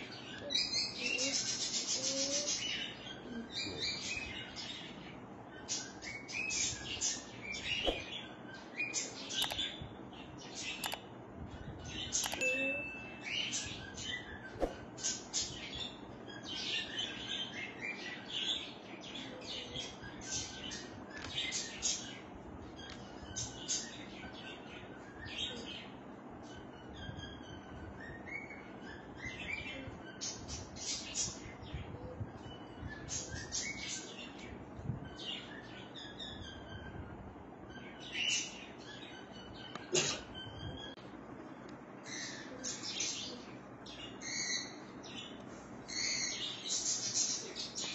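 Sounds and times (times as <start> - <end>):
small birds chirping: 0.0 - 47.9
sharp click: 9.4 - 9.7, 10.8 - 11.0, 12.2 - 12.5.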